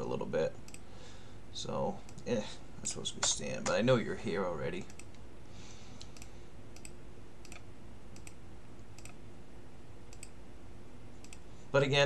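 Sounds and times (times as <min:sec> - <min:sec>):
steady low hum: 0:00.0 - 0:12.0
faint computer clicking: 0:00.6 - 0:00.9, 0:02.0 - 0:02.3, 0:04.7 - 0:05.2, 0:06.0 - 0:09.2, 0:10.1 - 0:10.4, 0:11.2 - 0:11.5.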